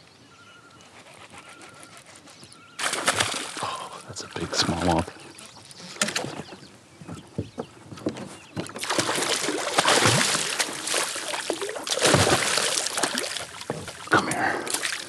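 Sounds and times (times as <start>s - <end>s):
fish splashing in water: 2.8s - 5.0s, 8.8s - 15.0s.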